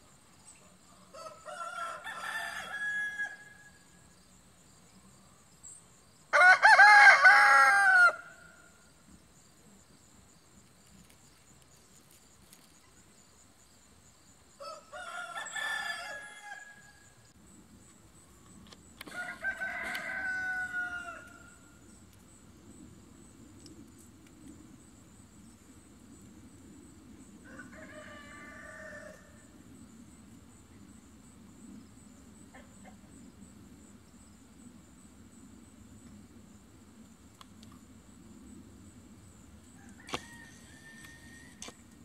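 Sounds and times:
rooster crowing: 1.1s - 3.8s, 6.3s - 8.6s, 14.6s - 17.2s, 19.1s - 21.7s, 27.4s - 29.5s, 39.8s - 41.7s.

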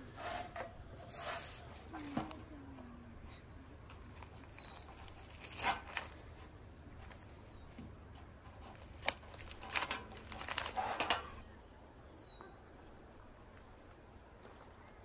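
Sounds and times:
faint outdoor background: 0.0s - 15.0s
roast chicken skin crackling: 3.9s - 11.3s
bird chirp: 4.2s - 5.0s, 7.0s - 7.8s, 11.5s - 12.9s.

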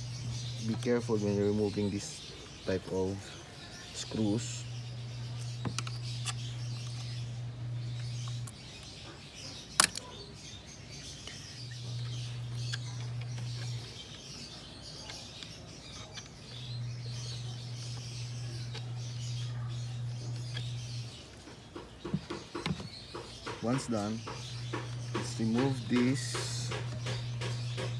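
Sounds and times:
low steady hum: 0.0s - 10.0s, 11.0s - 21.5s
birds chirping: 0.0s - 27.9s.

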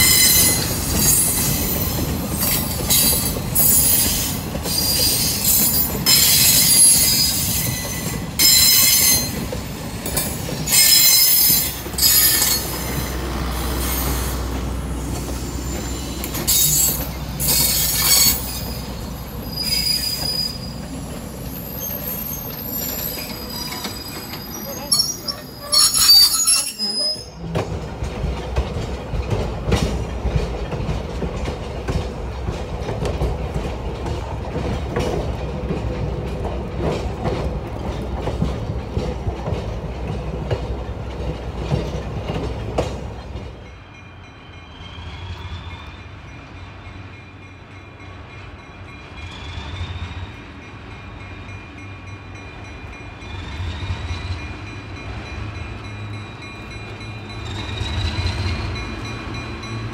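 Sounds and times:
train wheels squealing: 0.0s - 13.2s, 15.5s - 27.4s, 43.5s - 48.1s, 48.9s - 59.9s
wheels clicking over rail joints: 0.0s - 43.8s
diesel locomotive with high whine: 0.0s - 59.9s
train riding rumble: 0.0s - 59.9s.

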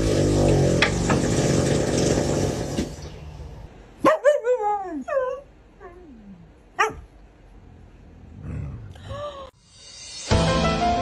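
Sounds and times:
mechanical hum: 0.0s - 9.8s
dog whining: 4.2s - 7.0s.

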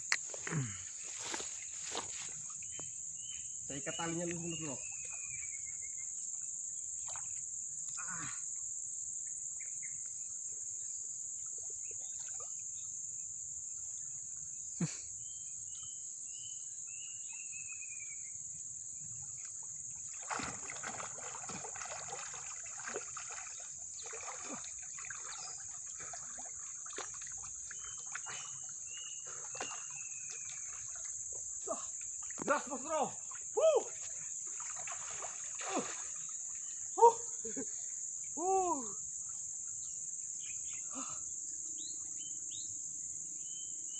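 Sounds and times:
water sloshing and splashing: 0.1s - 2.9s, 19.2s - 36.9s.

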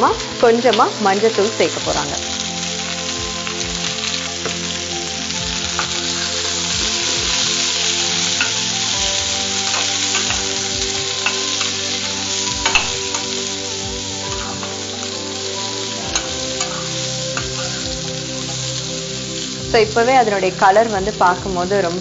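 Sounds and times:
vegetables sizzling in hot oil: 0.0s - 22.0s.

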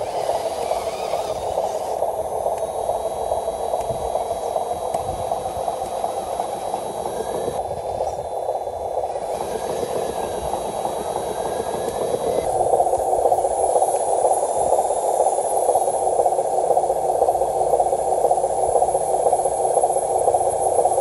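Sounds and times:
toy truck motor whirring: 0.0s - 8.3s, 9.0s - 13.7s.

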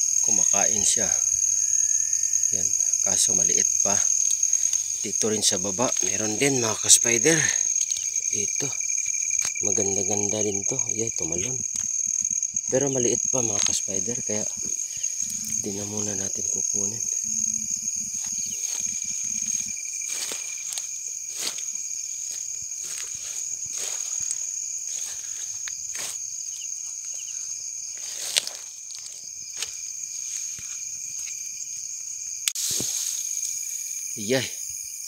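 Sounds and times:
night insects chorus: 0.0s - 35.0s
footsteps: 2.6s - 26.2s, 26.8s - 31.4s
leaves and stems rustling and snapping: 3.8s - 10.3s.

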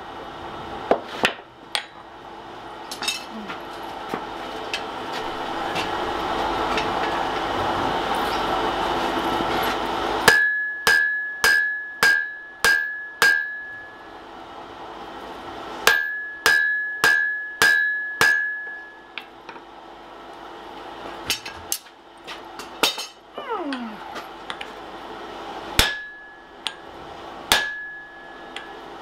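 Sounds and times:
hammer striking hot iron on anvil: 1.2s - 2.0s, 10.2s - 14.1s, 15.8s - 19.6s, 22.6s - 23.2s, 25.7s - 29.0s.

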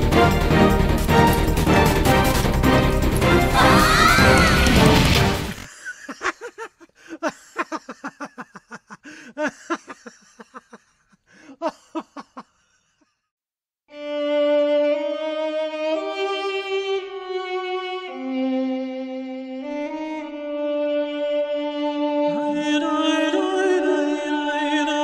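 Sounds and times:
slow violin melody: 13.9s - 24.8s.

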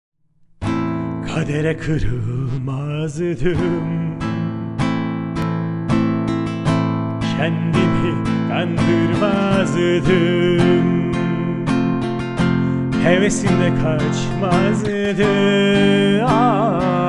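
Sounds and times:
strummed acoustic guitar: 0.6s - 17.0s
man singing: 1.2s - 5.0s, 7.2s - 17.0s.

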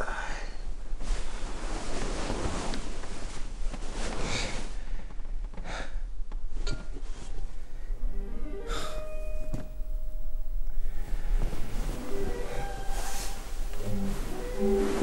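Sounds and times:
faint held tones: 8.0s - 15.0s.

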